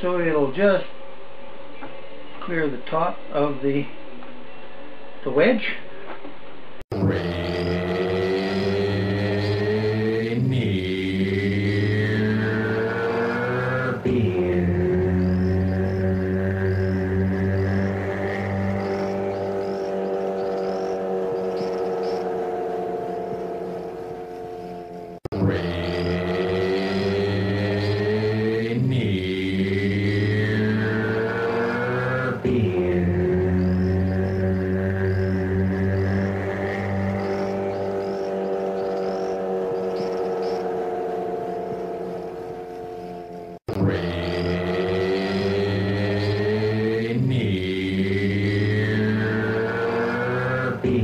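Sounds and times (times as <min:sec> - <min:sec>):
table saw motor hum: 0:11.4 - 0:28.4.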